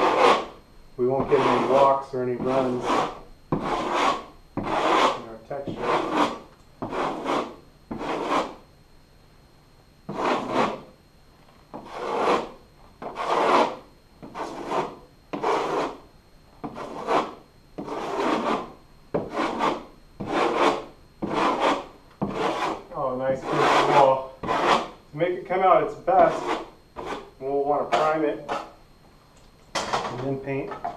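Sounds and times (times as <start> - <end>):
drywall knife scraping wall: 0.0 - 8.6, 10.1 - 10.9, 11.7 - 16.0, 16.6 - 25.0, 26.2 - 28.8.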